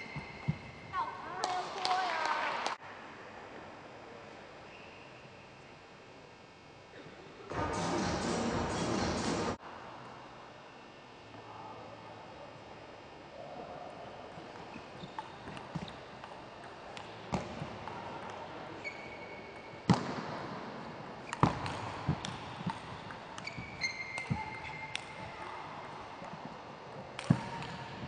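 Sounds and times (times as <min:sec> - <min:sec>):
short high squeaks: 0:23.4 - 0:25.0.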